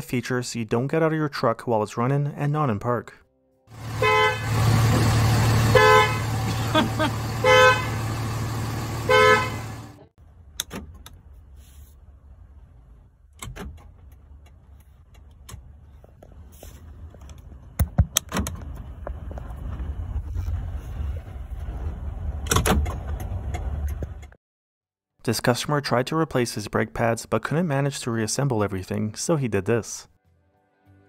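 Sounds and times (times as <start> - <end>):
truck horn honking: 3.7 - 10.0
engine idling: 3.7 - 10.1.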